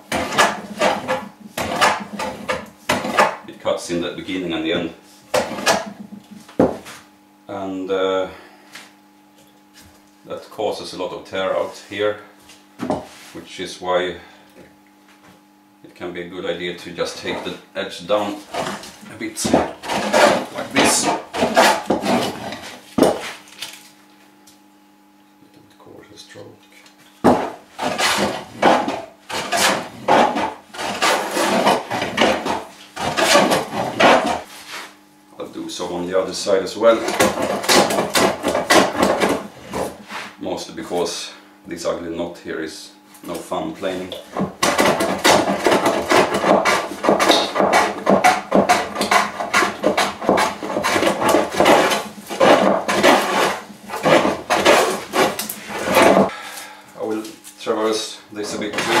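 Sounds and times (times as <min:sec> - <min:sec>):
hand plane shaving wood: 0:00.0 - 0:03.4, 0:18.2 - 0:23.4, 0:27.3 - 0:34.9, 0:36.8 - 0:40.4, 0:43.8 - 0:56.3, 0:58.4 - 0:59.0.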